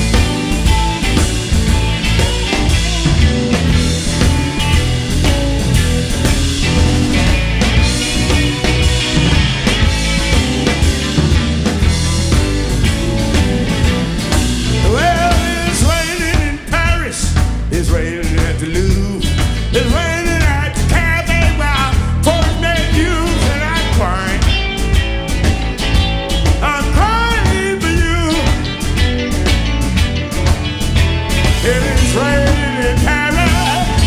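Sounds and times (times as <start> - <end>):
electric blues band playing: 0.0 - 34.0
lead vocal singing: 14.7 - 24.6, 26.6 - 28.7, 31.6 - 34.0.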